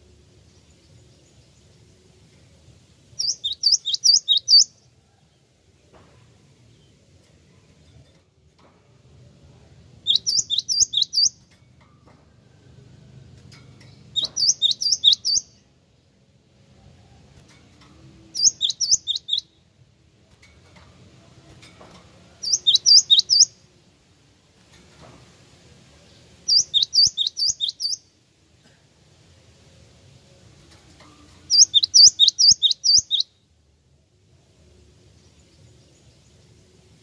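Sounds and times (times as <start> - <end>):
bird singing high sharp notes: 3.2 - 4.8, 10.0 - 11.5, 14.1 - 15.6, 18.3 - 19.6, 22.4 - 23.6, 26.5 - 28.1, 31.5 - 33.4.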